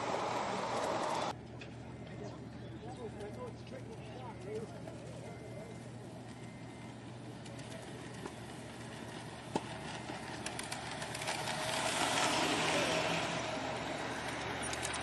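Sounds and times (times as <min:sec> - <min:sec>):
model train wheels rumbling and clicking: 0:00.0 - 0:01.4, 0:06.0 - 0:15.0.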